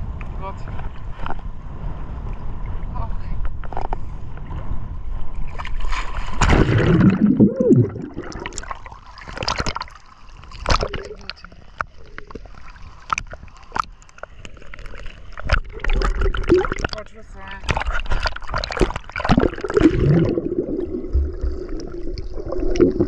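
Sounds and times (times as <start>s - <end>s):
seawater sloshing and splashing: 5.4s - 23.0s.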